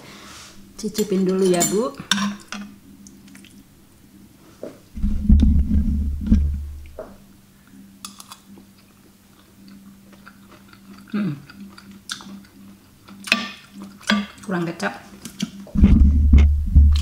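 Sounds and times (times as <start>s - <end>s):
steady low hum: 0.0s - 17.0s
loud low rumble of handling: 4.9s - 7.3s, 15.7s - 17.0s
person chewing food: 8.1s - 14.4s.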